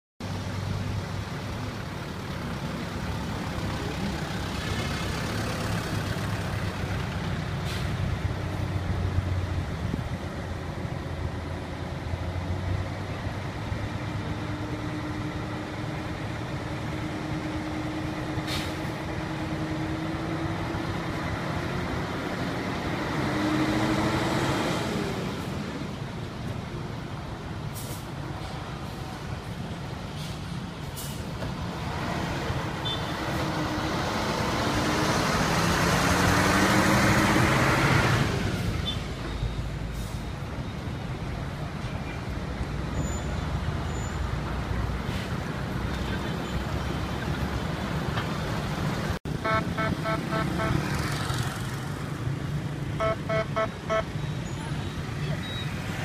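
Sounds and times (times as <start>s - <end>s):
truck diesel engine humming: 0.2s - 23.4s, 42.3s - 56.0s.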